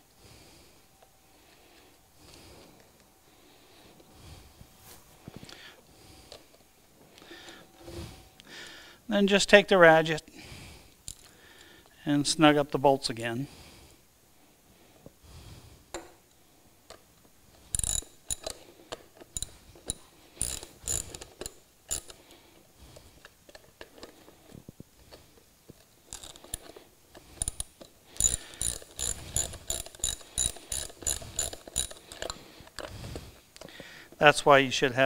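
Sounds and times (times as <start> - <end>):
socket ratchet clicking: 17.6 - 22.2, 26.1 - 32.9.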